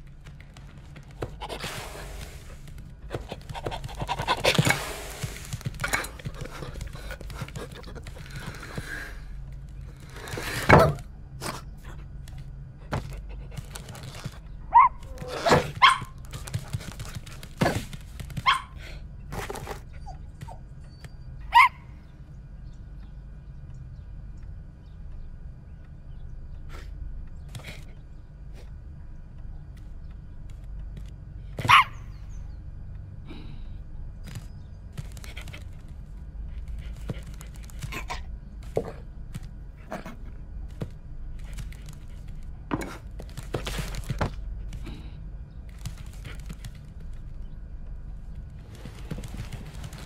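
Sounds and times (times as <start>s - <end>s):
low steady hum: 0.0s - 50.0s
cartoon dog panting and sniffing: 1.2s - 9.4s, 35.0s - 39.0s.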